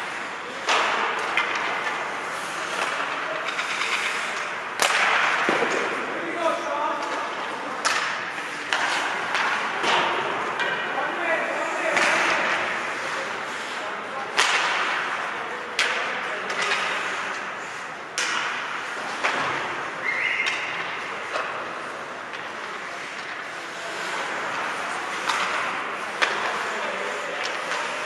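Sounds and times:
skates scraping on ice: 0.0 - 10.2, 11.3 - 15.0, 18.8 - 28.0
hockey sticks hitting puck: 0.0 - 28.0
puck hitting boards: 0.5 - 6.2, 7.0 - 11.0, 11.9 - 12.8, 14.3 - 17.5, 18.1 - 19.8, 24.3 - 28.0.

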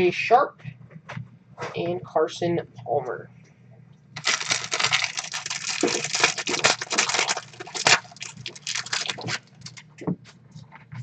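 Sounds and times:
plastic wrapper crinkling: 4.2 - 10.0.

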